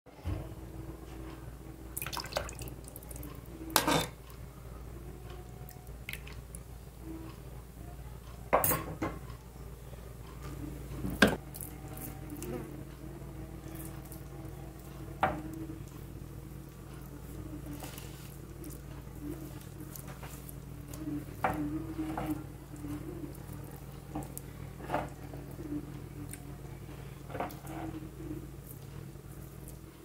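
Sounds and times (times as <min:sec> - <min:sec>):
low steady hum: 0:00.1 - 0:30.0
broth dripping and splashing: 0:02.0 - 0:03.3.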